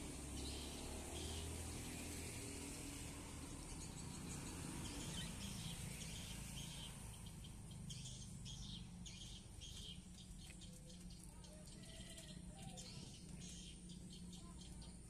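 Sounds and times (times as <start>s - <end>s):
lovebirds chirping: 3.3s - 15.0s
faint low hum: 3.4s - 15.0s.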